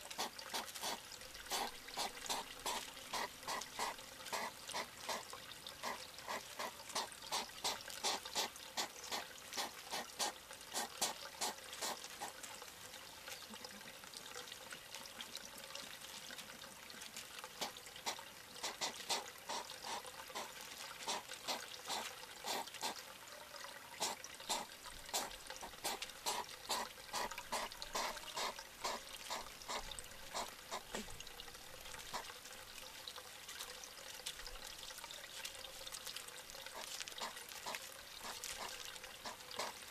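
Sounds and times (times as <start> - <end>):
hedgehogs snuffling: 0.1 - 12.3, 17.6 - 23.0, 24.0 - 31.1, 36.7 - 39.8.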